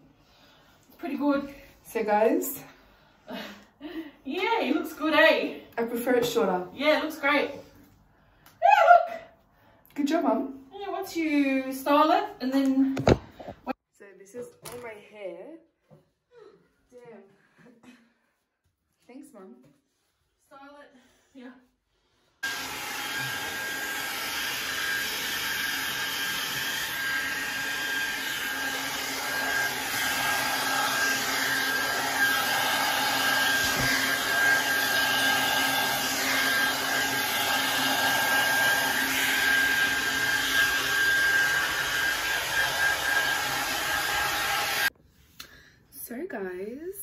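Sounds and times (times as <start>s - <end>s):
hair dryer blowing: 3.3s - 7.6s, 22.4s - 44.9s.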